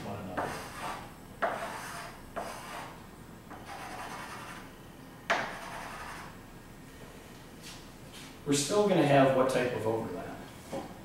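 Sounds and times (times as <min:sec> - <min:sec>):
chalk scratching on chalkboard: 0:00.4 - 0:04.7, 0:05.3 - 0:06.4.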